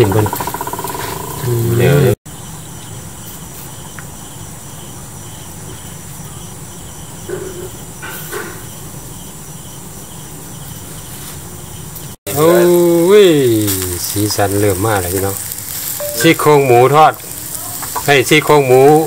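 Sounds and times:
insects chirping: 0.0 - 19.0
steady hiss: 10.9 - 19.0.

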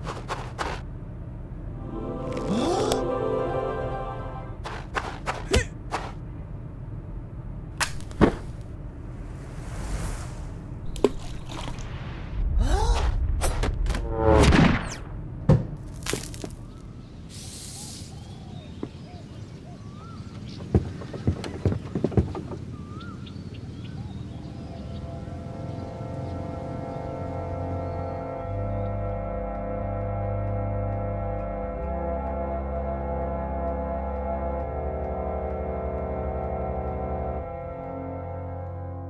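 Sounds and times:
falling swoop: 8.3 - 15.2
airy swishes: 8.9 - 12.6.

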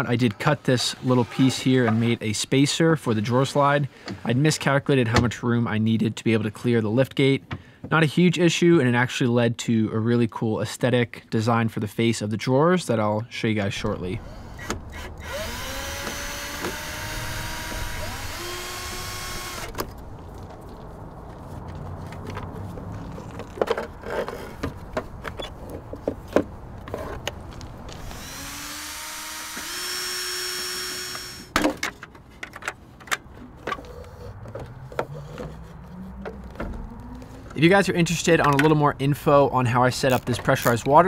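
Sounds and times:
cordless drill spinning: 14.3 - 19.9, 27.9 - 31.6.

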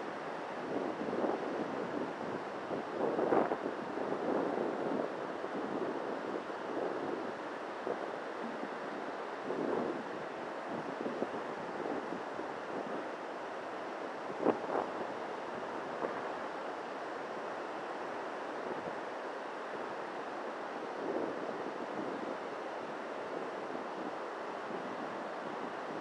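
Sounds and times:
wind buffeting microphone: 0.6 - 13.0, 14.3 - 16.3.

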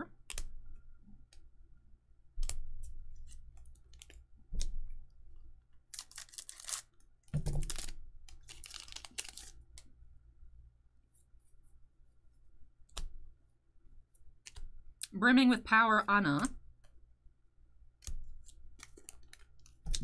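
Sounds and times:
papery rustling: 5.9 - 6.9, 7.5 - 9.6.

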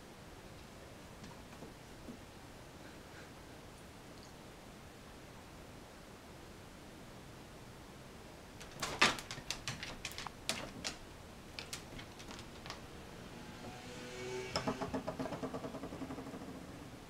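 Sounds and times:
dog's claws clicking on hardwood floor: 8.6 - 12.9
low rapidly pulsing buzz: 12.8 - 17.0.

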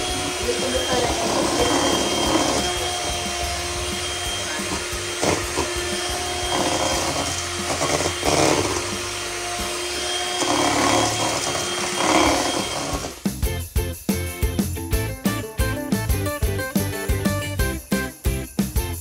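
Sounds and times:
electric hand mixer whirring: 0.0 - 13.4.

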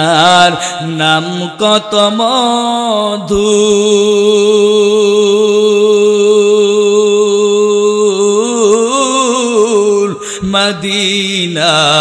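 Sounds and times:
man singing in chanting style: 0.0 - 12.0
quick breath: 10.2 - 10.5.

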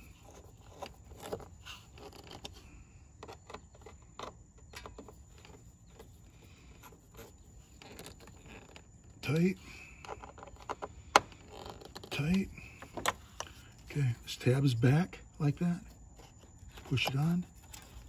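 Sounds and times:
screwdriver clicking and scraping: 0.0 - 2.6, 10.0 - 13.6.

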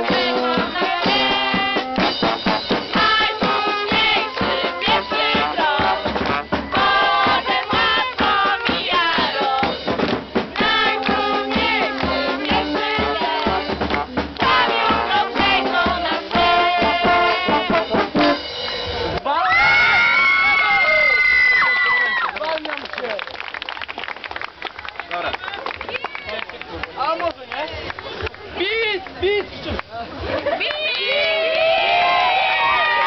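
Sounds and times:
live band playing: 0.0 - 19.7.

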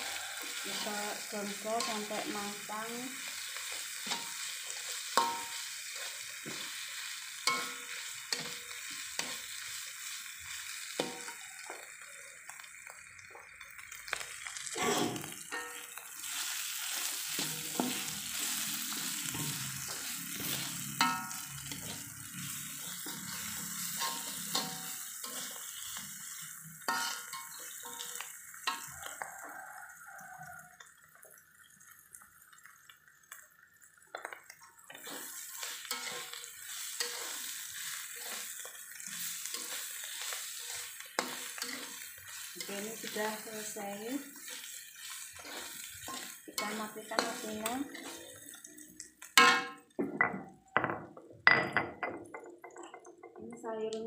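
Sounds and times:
metal spatula scraping a wok: 0.0 - 9.8, 15.0 - 29.2, 34.9 - 48.5
paste sizzling in hot oil: 0.0 - 50.0
spatula clinking against pan: 5.2 - 5.6, 7.4 - 8.6, 21.0 - 22.0, 26.9 - 29.2.

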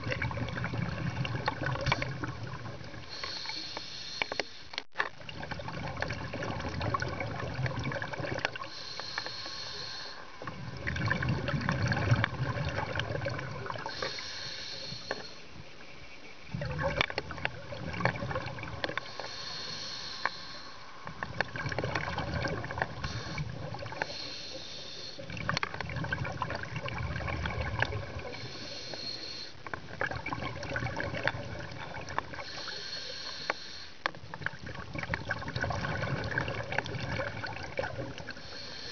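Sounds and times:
exhaled air bubbling underwater: 0.0 - 38.9
regulator inhalation hiss: 3.1 - 4.8, 8.7 - 10.4, 13.8 - 15.5, 19.0 - 21.0, 23.0 - 25.2, 28.3 - 29.6, 32.4 - 34.0, 38.3 - 38.9.

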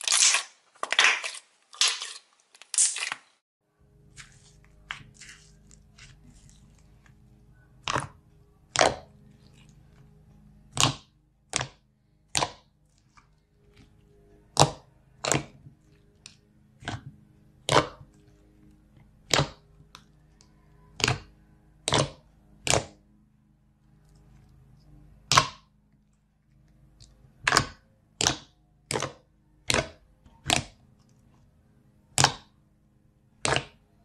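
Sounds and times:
hands squishing slime: 0.0 - 2.2, 4.1 - 7.2, 7.8 - 10.0, 10.7 - 13.9, 19.2 - 20.0, 20.8 - 23.0, 25.2 - 25.6, 27.4 - 30.8, 32.1 - 32.5, 33.4 - 33.8
sharp slime air pops: 33.4 - 33.7.

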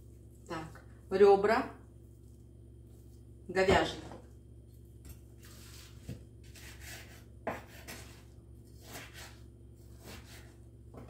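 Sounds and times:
knife scraping through meat: 5.4 - 10.6.

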